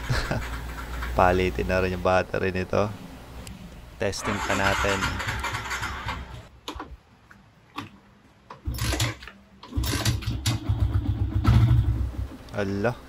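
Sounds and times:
engine starter cranking: 0.0s - 1.4s, 4.2s - 6.5s, 8.6s - 12.4s.

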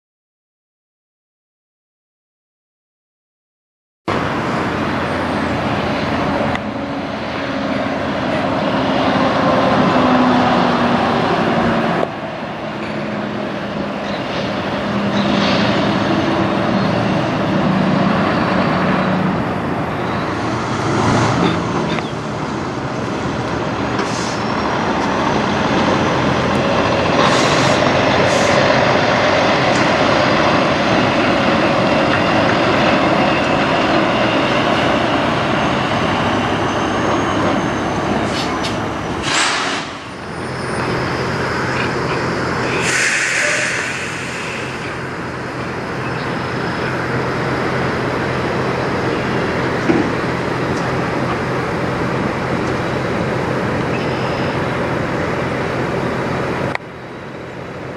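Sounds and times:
heavy diesel truck engines: 4.1s - 57.9s
short high hisses: 27.3s - 28.6s, 39.2s - 40.0s, 42.6s - 45.0s.

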